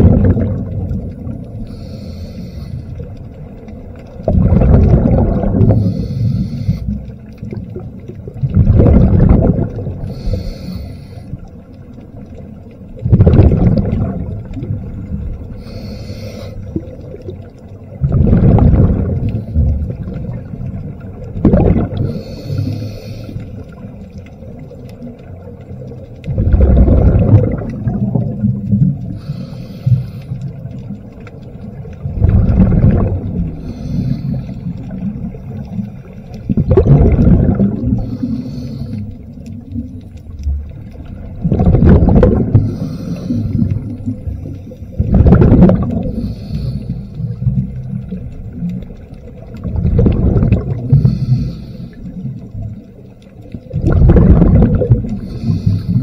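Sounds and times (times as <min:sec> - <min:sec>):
bubbling underwater exhale: 0:00.0 - 0:56.0
faint breathing hiss: 0:01.2 - 0:03.6, 0:05.5 - 0:07.4, 0:09.9 - 0:12.0, 0:14.4 - 0:18.0, 0:21.9 - 0:24.5, 0:28.9 - 0:32.0, 0:33.4 - 0:36.4, 0:37.9 - 0:40.4, 0:42.6 - 0:45.0, 0:46.0 - 0:49.5, 0:50.8 - 0:53.7, 0:55.0 - 0:56.0.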